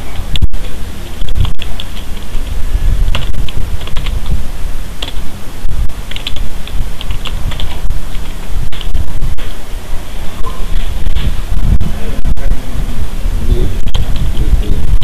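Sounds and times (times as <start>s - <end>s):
keyboard typing: 0.0s - 4.4s, 5.0s - 9.6s
low background rumble: 0.0s - 15.0s.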